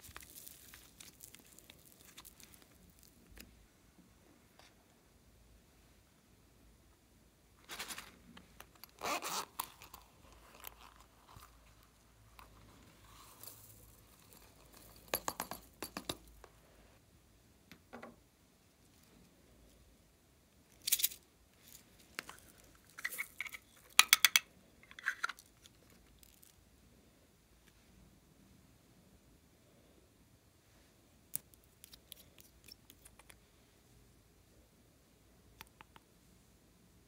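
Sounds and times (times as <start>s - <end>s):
plastic packaging clicking and crackling: 0.0s - 3.4s.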